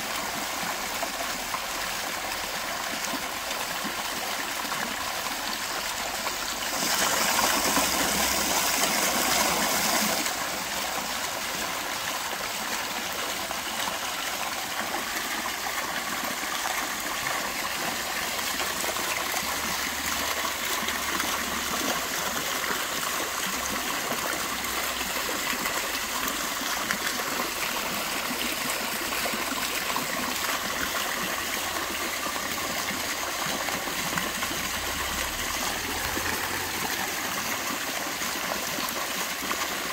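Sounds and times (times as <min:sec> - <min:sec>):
fountain water splashing: 0:00.0 - 0:39.9.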